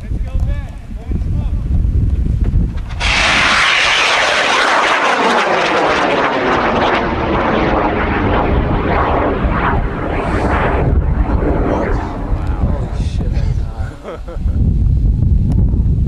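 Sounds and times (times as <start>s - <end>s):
rocket motor rushing noise: 2.7s - 14.1s.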